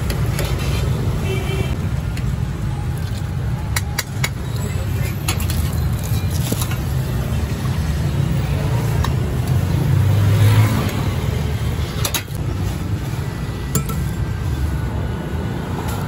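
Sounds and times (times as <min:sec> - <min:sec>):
street traffic rumble: 0:00.0 - 0:16.0
metal bowls and ladle clinking: 0:03.8 - 0:07.2, 0:13.7 - 0:14.3.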